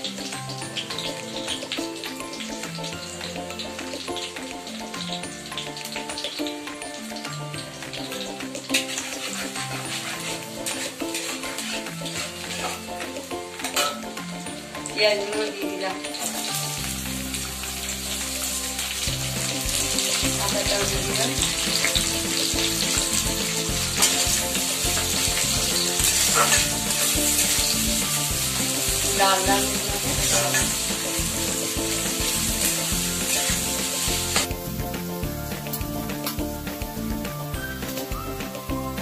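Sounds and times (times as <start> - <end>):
onions sizzling in hot oil: 0.0 - 39.0
spatula stirring: 8.1 - 14.0, 19.4 - 34.7.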